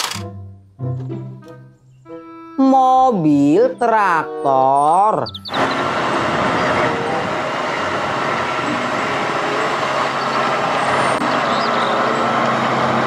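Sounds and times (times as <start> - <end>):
tractor diesel engine running: 4.5 - 13.0.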